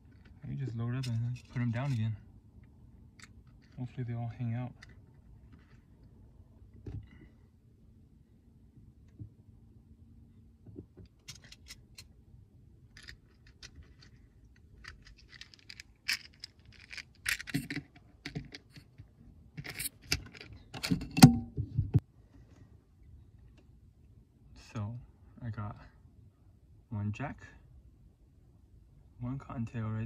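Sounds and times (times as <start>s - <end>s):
small metallic clicks and scrapes: 0.0s - 4.0s, 4.7s - 6.2s, 10.8s - 12.2s, 12.9s - 21.4s.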